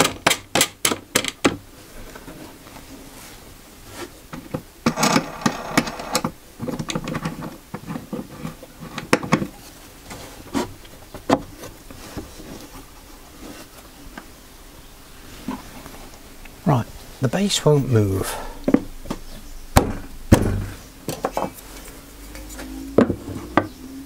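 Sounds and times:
wood scraping and rubbing: 0:01.9 - 0:14.3.

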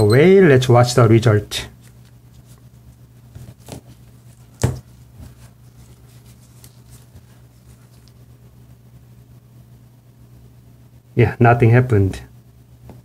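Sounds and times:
steady low hum: 0:00.0 - 0:13.0
handling noises: 0:01.8 - 0:08.3.

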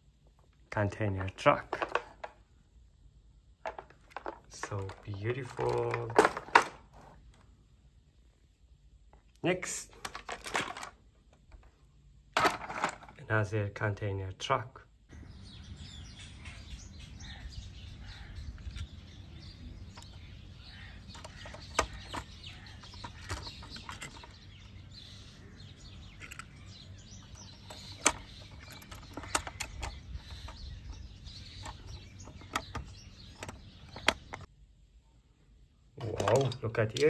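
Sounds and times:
birds chirping: 0:00.0 - 0:08.3, 0:13.3 - 0:37.0
toy trucks clicking on wooden deck: 0:01.2 - 0:02.4, 0:03.6 - 0:07.1, 0:21.1 - 0:24.4, 0:26.1 - 0:34.5.

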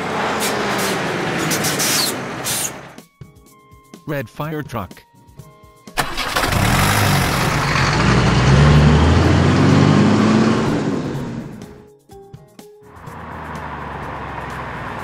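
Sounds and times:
truck engine revving: 0:00.0 - 0:03.0, 0:06.0 - 0:11.8, 0:13.1 - 0:15.0.

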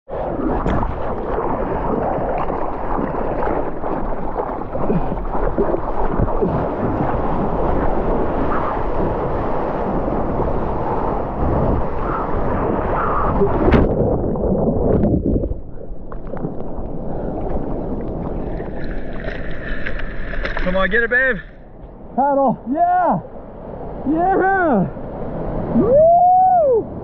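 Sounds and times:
wind buffeting microphone: 0:00.1 - 0:21.0
water splashing against surfboard: 0:00.1 - 0:21.7.

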